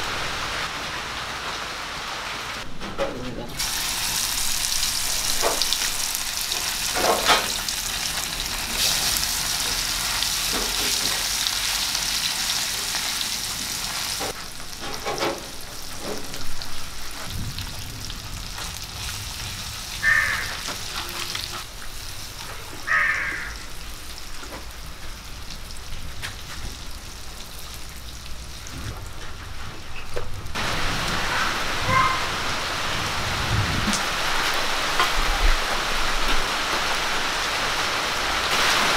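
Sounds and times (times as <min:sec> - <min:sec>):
fish sizzling in hot oil: 0:03.6 - 0:22.4.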